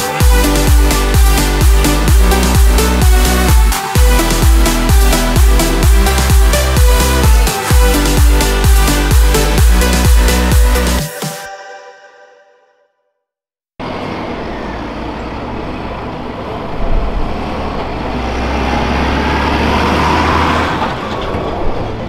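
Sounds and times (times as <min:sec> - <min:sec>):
background music: 0:00.0 - 0:13.0
diesel engine of harvesting machinery: 0:13.8 - 0:22.0.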